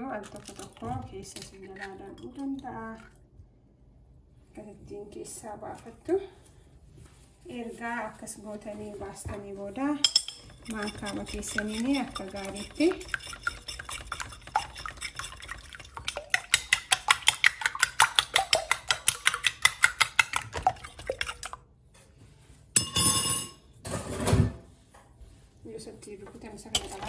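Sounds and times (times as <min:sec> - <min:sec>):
metal spoon beating in glass bowl: 0:10.0 - 0:21.5, 0:26.8 - 0:27.0.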